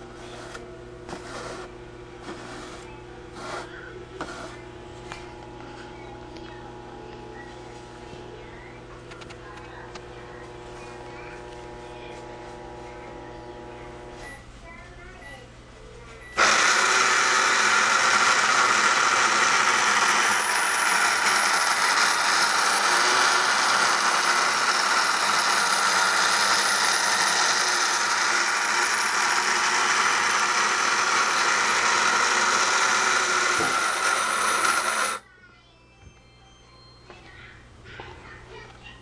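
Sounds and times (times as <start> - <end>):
toy blender motor whirring: 16.4 - 35.2.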